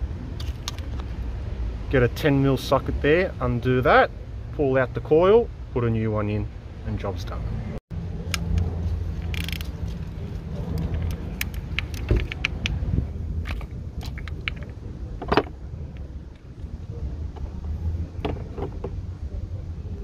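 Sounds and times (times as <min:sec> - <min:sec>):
socket wrench clicking: 0:08.3 - 0:09.7, 0:10.8 - 0:12.8.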